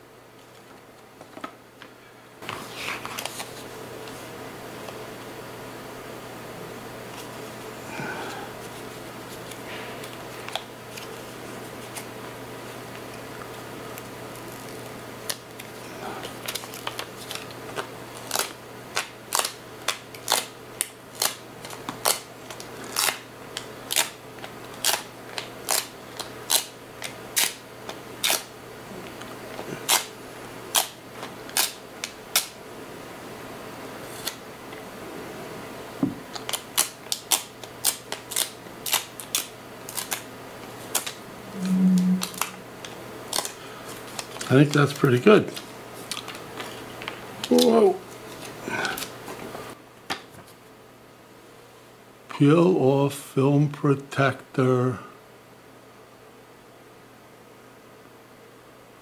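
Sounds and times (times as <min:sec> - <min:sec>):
brief low hum: 0:41.4 - 0:42.7.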